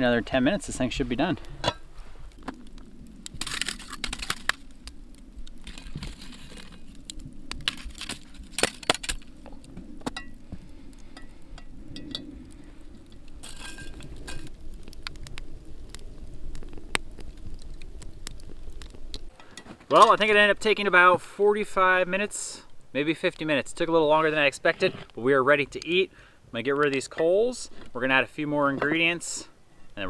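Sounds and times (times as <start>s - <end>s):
wood fire crackling: 0.0s - 30.0s.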